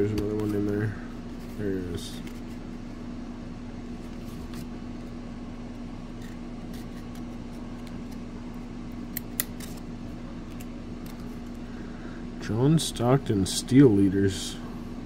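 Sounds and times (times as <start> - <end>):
steady low hum: 0.0 - 15.0
cardboard cards clicking and rubbing: 1.4 - 2.6, 4.0 - 4.7, 6.2 - 8.3.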